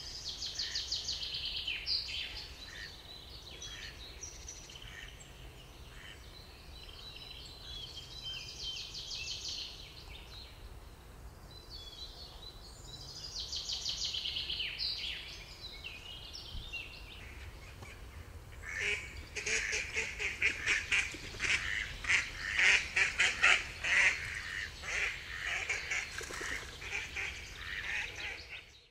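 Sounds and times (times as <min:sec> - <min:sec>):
songbirds trilling: 0:00.0 - 0:28.9
ducks quacking: 0:17.8 - 0:28.7.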